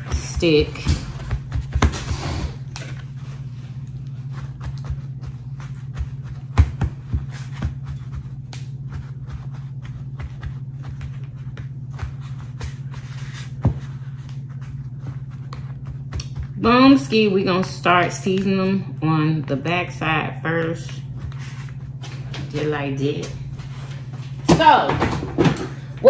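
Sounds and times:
paper towels rustling and patting: 0.0 - 18.1, 20.9 - 24.4
steady low hum: 0.0 - 26.0.

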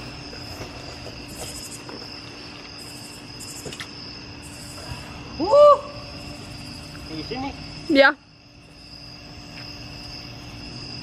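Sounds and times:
crickets chirping: 0.0 - 11.0
insect drone: 0.0 - 11.0
person shouting: 5.4 - 6.0.

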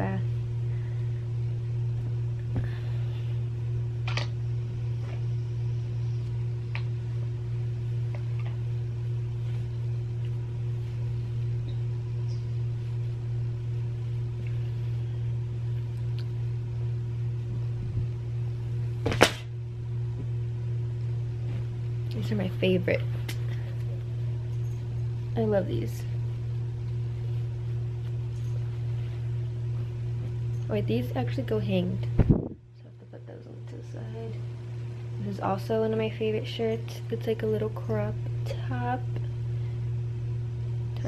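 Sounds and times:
steady low hum: 0.0 - 41.0
clothes being shaken and folded: 7.3 - 19.4, 21.3 - 32.6.

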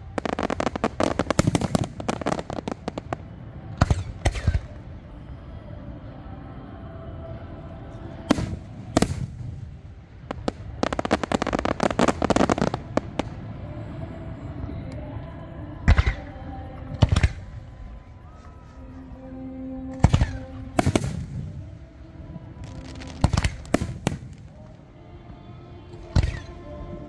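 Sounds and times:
fireworks booming: 0.0 - 4.7, 8.3 - 13.6, 20.0 - 21.8, 22.6 - 24.7
fireworks crackling: 0.0 - 4.7, 8.2 - 13.8, 19.9 - 24.9.

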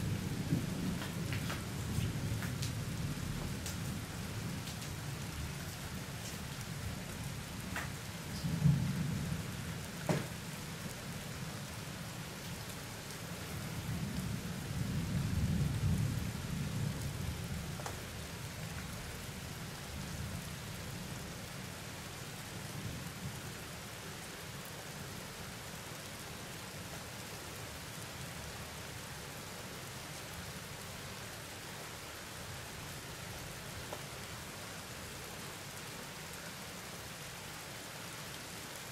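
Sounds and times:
thunder rumbling: 0.0 - 4.1
steady rain falling: 0.0 - 38.9.

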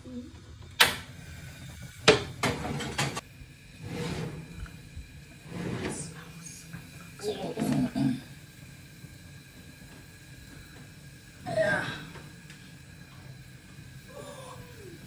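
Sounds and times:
dish scraping on oven rack: 2.1 - 3.2, 3.8 - 4.8, 5.4 - 6.1.

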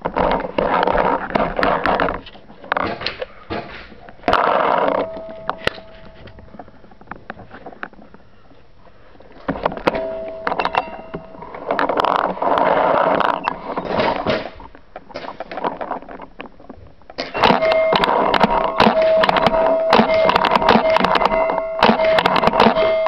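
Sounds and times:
steady hum: 0.0 - 16.0, 17.3 - 23.0
rustling movement noise: 0.0 - 17.1
gear knocking against body: 17.3 - 23.0.

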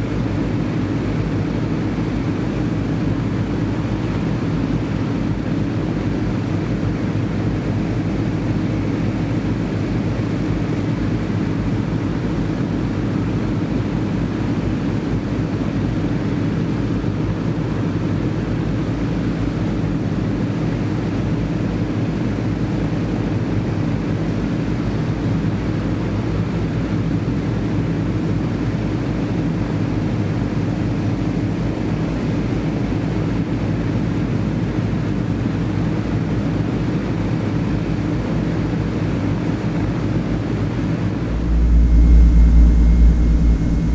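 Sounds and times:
aircraft piston engines droning: 40.0 - 43.9.

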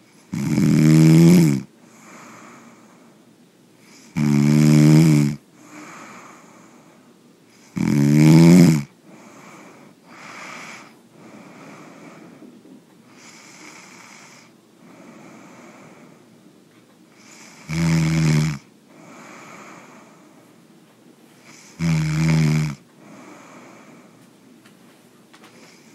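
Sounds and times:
person snoring: 0.2 - 3.0, 3.8 - 6.9, 7.6 - 12.4, 13.1 - 16.2, 17.2 - 20.4, 21.4 - 24.2
faint breaths: 1.7 - 4.2, 5.4 - 7.8, 8.9 - 17.8, 18.6 - 22.0, 22.8 - 25.9.

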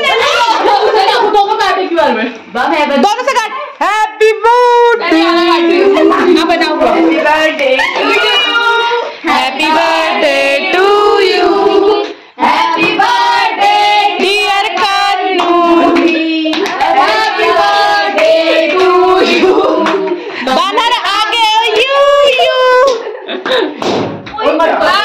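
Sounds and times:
voices singing together: 5.0 - 22.3
hand-clapping: 14.2 - 16.9, 22.8 - 24.4.

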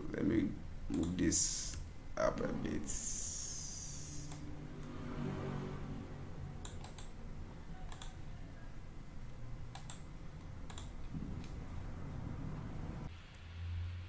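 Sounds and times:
low steady hum: 0.0 - 14.0
keyboard and mouse clicks: 6.6 - 7.2, 7.9 - 8.2, 9.7 - 11.6.

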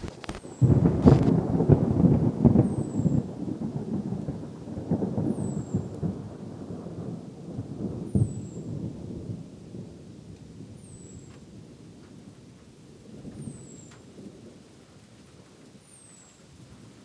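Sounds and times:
thunder rumbling: 0.0 - 17.0.

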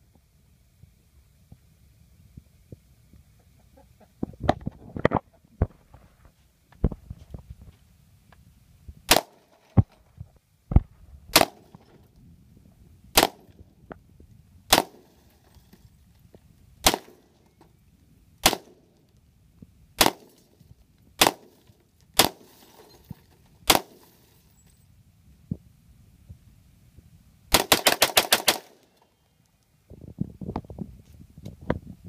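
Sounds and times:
rifle shots cracking: 9.1 - 9.6, 11.3 - 11.8, 13.2 - 13.6, 14.7 - 15.3, 16.8 - 17.3, 18.4 - 18.8, 20.0 - 20.5, 21.2 - 21.6, 22.2 - 22.7, 23.6 - 24.2, 27.5 - 28.9.

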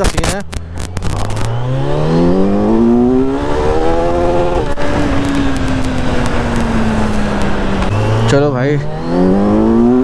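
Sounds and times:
motorcycle engine accelerating: 0.0 - 10.0.

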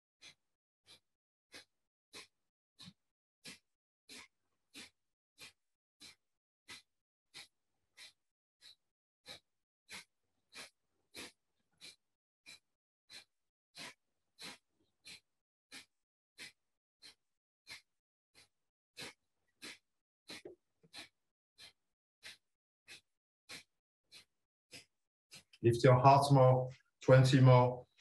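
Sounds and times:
sharp forceful breaths out: 3.4 - 6.8, 7.4 - 17.8, 18.4 - 25.5.

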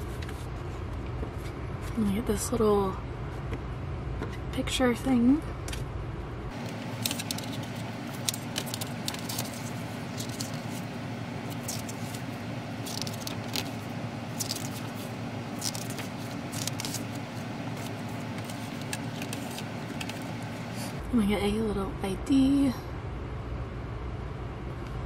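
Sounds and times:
low hum: 5.4 - 25.0.

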